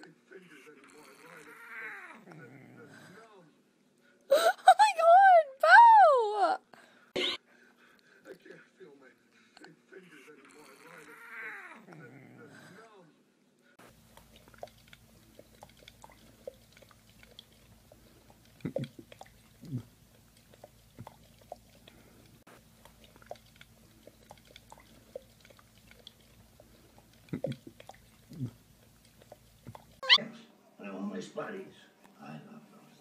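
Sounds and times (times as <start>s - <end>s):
dog wet chewing smacks: 13.8s - 30.2s
teeth clicking on glass: 18.4s - 19.8s.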